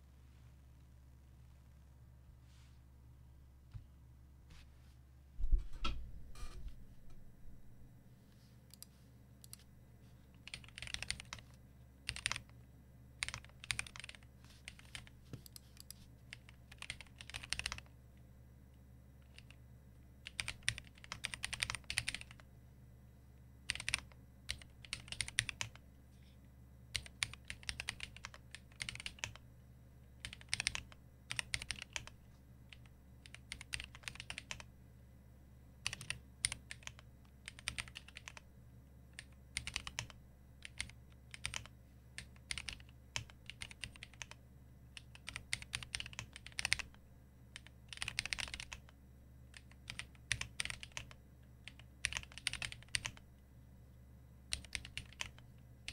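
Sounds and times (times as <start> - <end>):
typing on mechanical keyboard: 10.4 - 11.5, 12.1 - 12.6, 13.2 - 17.9, 19.2 - 19.6, 20.2 - 22.4, 23.7 - 25.8, 26.9 - 29.4, 30.2 - 34.7, 35.8 - 38.4, 39.2 - 44.4, 45.0 - 47.0, 47.6 - 53.2, 54.5 - 55.9.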